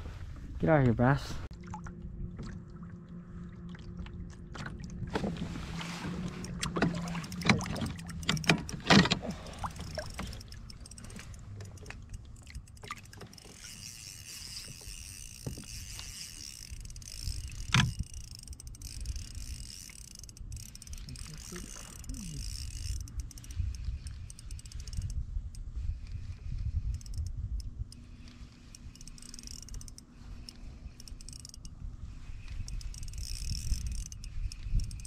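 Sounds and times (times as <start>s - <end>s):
knocks and clatter in boat: 4.0s - 13.6s, 14.6s - 16.1s.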